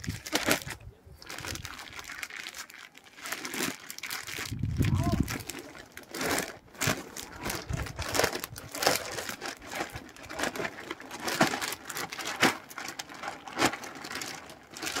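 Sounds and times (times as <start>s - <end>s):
plastic sack crinkling: 0.0s - 15.0s.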